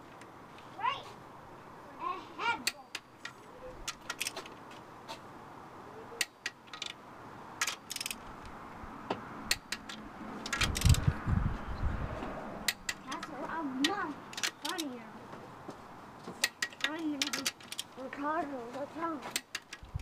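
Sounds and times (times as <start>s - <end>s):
torque wrench clicking: 7.6s - 8.5s, 9.5s - 11.1s, 12.6s - 14.9s, 16.4s - 18.0s, 19.3s - 20.0s.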